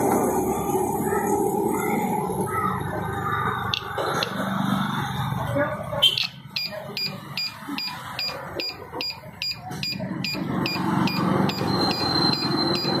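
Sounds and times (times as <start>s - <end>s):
two-tone alarm beeps: 6.0s - 13.0s
steady high alarm tone: 6.1s - 13.0s.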